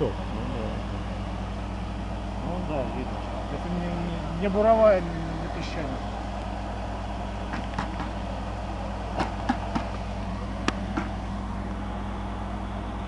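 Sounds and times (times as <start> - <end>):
drilling rig engine humming: 0.0 - 13.0
sharp clicks and knocks: 7.5 - 8.2, 9.2 - 10.0, 10.6 - 11.2.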